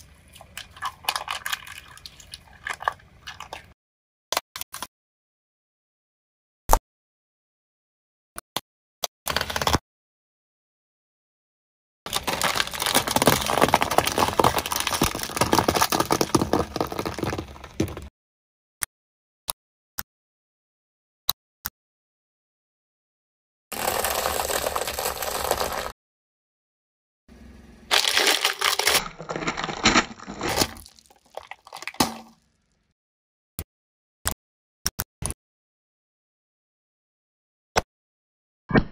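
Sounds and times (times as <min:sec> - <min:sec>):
brittle things crushed under tyre: 0:12.1 - 0:18.1, 0:27.9 - 0:32.4.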